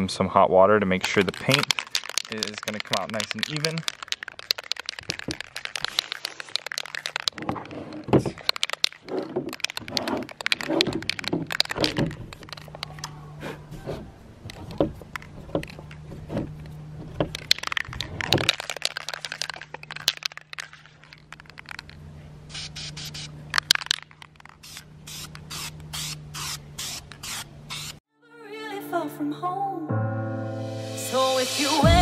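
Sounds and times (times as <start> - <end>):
spray can being shaken: 1.0 - 13.1, 17.3 - 28.0
knocks and clicks: 1.1 - 13.0
plastic scraping across table: 7.4 - 18.5.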